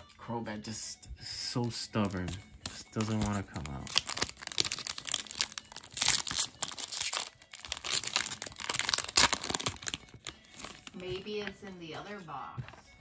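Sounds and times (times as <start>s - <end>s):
foil wrapper crinkling and tearing: 2.0s - 11.2s.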